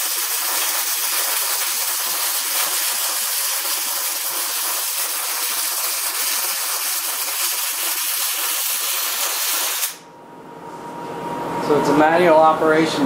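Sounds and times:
welding arc crackling hiss: 0.0 - 10.0.

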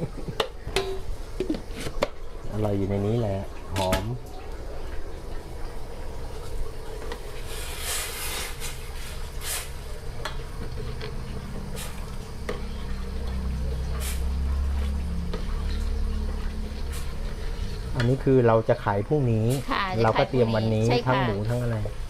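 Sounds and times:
gas burner flame rumble: 0.0 - 22.0
ladle stirring sauce in bowl: 6.4 - 22.0.

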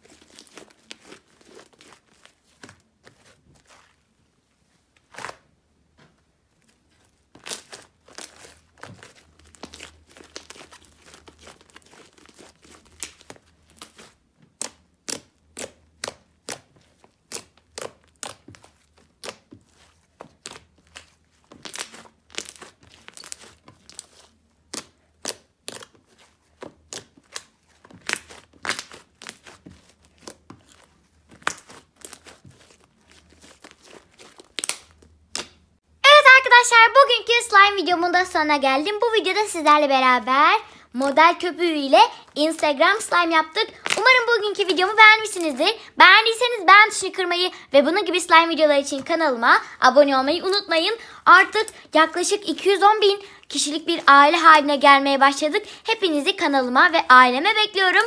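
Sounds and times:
slime crackling and popping: 7.2 - 35.8, 42.2 - 45.6.

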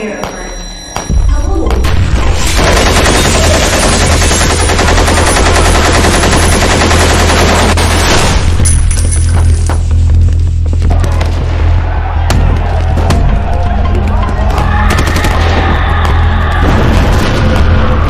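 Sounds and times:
rapid automatic gunfire: 2.4 - 8.4.

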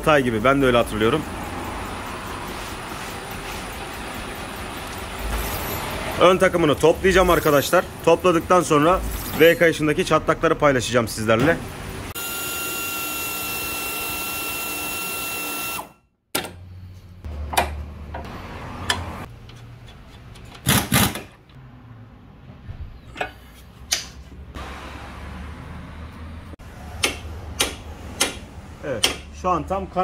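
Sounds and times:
high air tool whine: 12.1 - 16.0.

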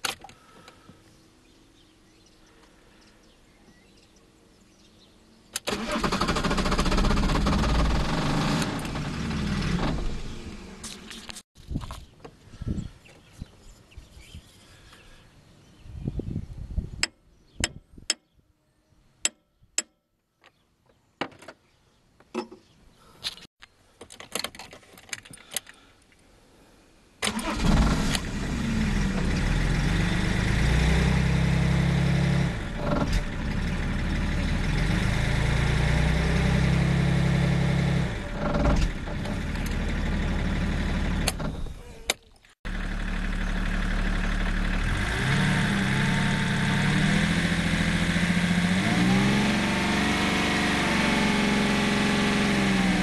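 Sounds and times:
diesel engine revving: 5.6 - 11.4, 27.2 - 41.8, 42.7 - 53.0.

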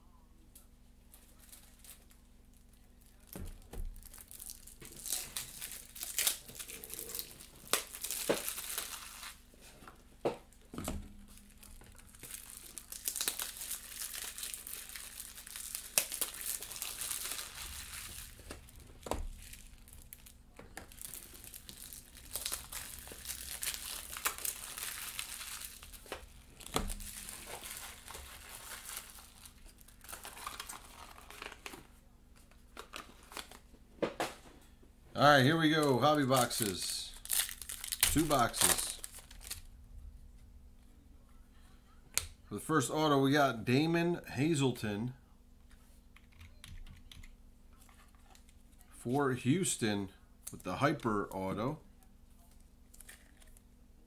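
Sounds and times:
packaging crinkling and tearing: 1.2 - 9.4, 11.2 - 33.7, 35.6 - 39.7, 52.4 - 53.7.

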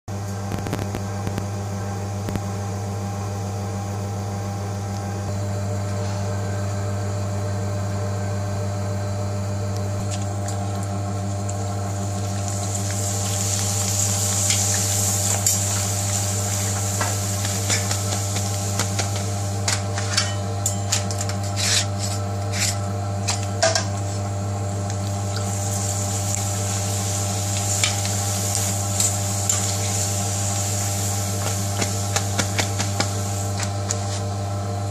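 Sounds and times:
steady low hum: 0.1 - 34.9
oil sizzling: 9.8 - 34.3.

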